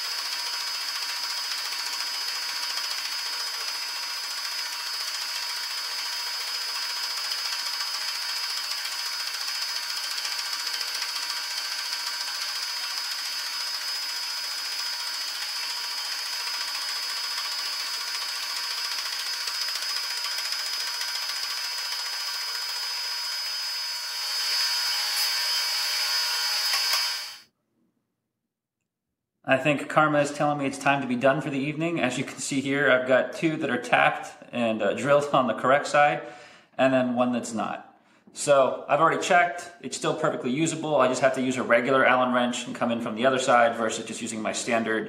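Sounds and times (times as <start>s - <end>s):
saw cutting steel whine: 0.0s - 27.4s.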